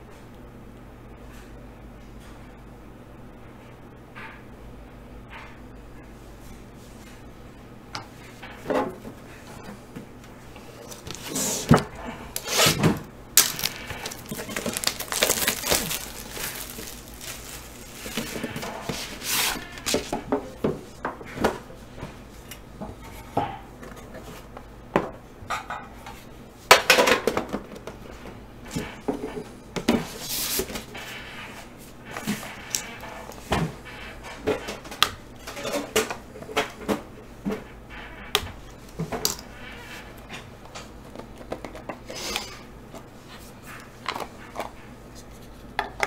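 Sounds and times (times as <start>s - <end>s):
rustles and clicks: 12.8s - 20.1s
boxes sliding and scraping: 13.7s - 20.1s.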